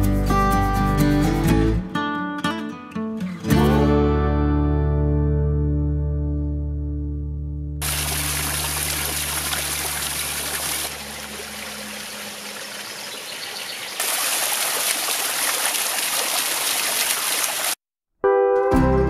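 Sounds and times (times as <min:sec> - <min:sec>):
fountain water splashing: 0:07.8 - 0:17.8
water splashing over water wheel: 0:07.8 - 0:17.8
water trickling over rocks: 0:07.8 - 0:17.8.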